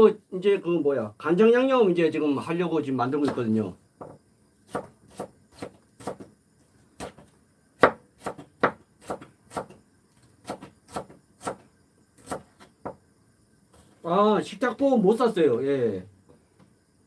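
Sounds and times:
knife chopping on wooden board: 4.0s - 6.3s, 7.0s - 9.8s, 10.4s - 11.6s, 12.2s - 13.0s.

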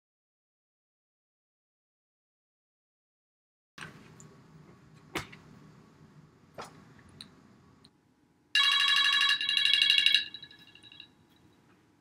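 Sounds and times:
mobile phone ringtone: 8.6s - 11.2s.

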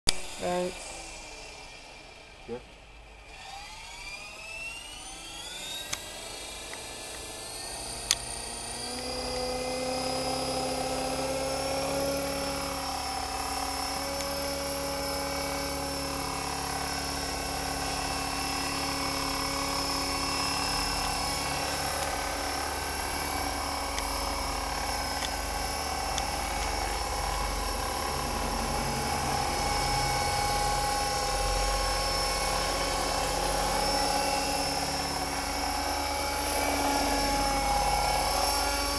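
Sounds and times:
model helicopter rotor whine: 0.1s - 38.9s
sharp clicks: 26.0s - 27.5s.

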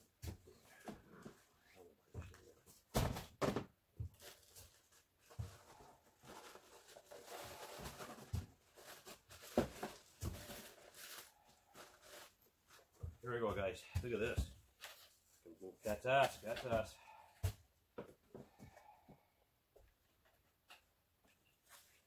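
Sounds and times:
cardboard and plastic wrap rustling: 0.2s - 17.6s.

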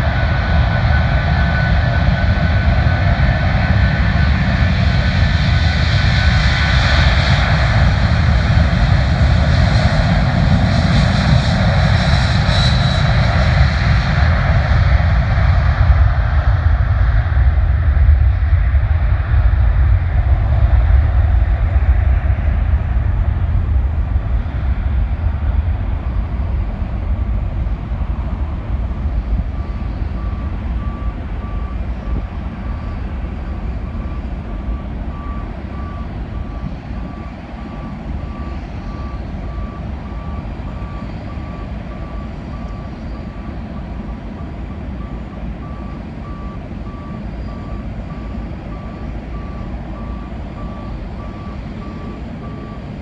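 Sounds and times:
low jet aircraft rumble: 0.0s - 53.0s
reversing alarm beeping: 28.1s - 53.0s.

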